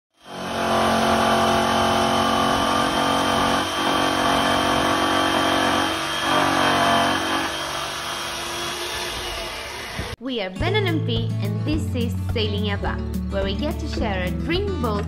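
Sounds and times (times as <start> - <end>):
jigsaw cutting wood: 0.1 - 10.2.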